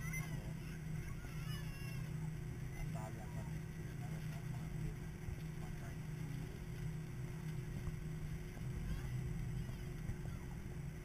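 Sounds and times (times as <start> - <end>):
faint steady tone: 0.0 - 11.0
jet engines humming at low power: 0.0 - 11.0.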